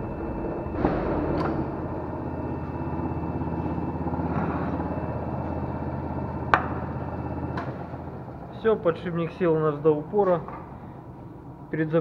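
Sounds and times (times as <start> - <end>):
hydraulic press pulsing hum: 0.0 - 11.8.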